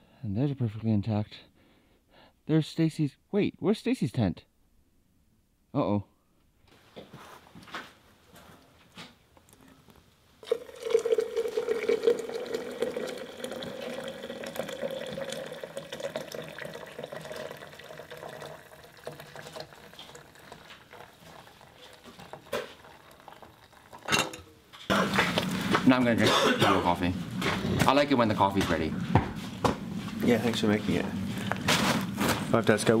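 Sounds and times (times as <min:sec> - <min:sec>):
water pouring into metal press: 0:10.4 - 0:24.4.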